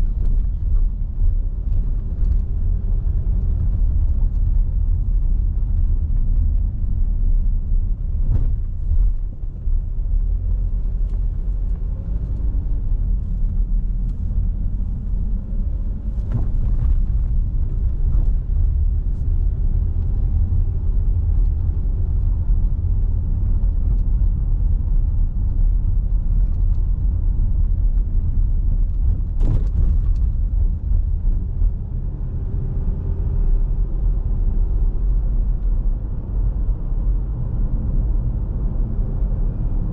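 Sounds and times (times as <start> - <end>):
car driving from inside cabin: 0.0 - 39.9
tyres on brick-paved street: 0.0 - 39.9
knocks from road bumps: 16.2 - 17.4.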